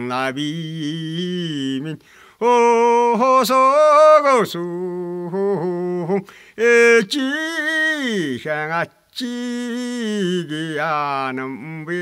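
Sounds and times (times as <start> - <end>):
man breathing: 2.0 - 2.4, 6.2 - 6.6.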